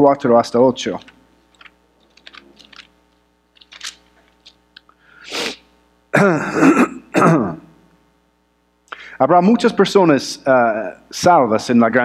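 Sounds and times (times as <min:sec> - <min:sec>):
pages rustling: 0:00.9 - 0:04.9.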